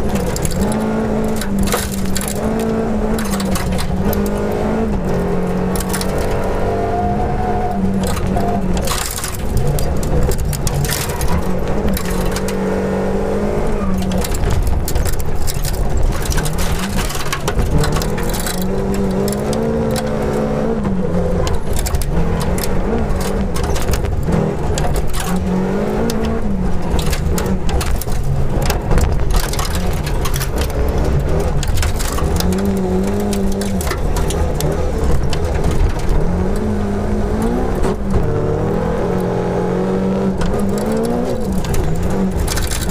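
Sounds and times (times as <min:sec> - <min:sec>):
gravel pinging on underbody: 0:00.0 - 0:42.9
rally car engine revving: 0:00.0 - 0:42.9.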